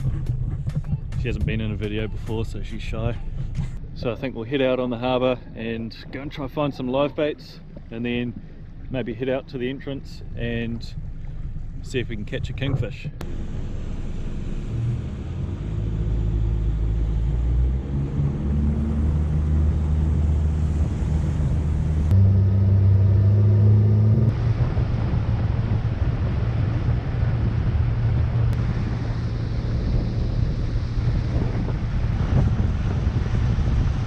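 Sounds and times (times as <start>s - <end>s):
outboard motor droning: 0.0s - 34.0s
wind: 0.0s - 34.0s.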